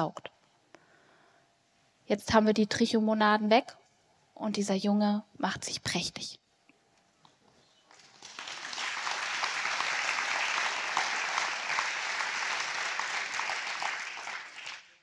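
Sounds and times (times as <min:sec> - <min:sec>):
audience applauding: 0:07.9 - 0:15.0.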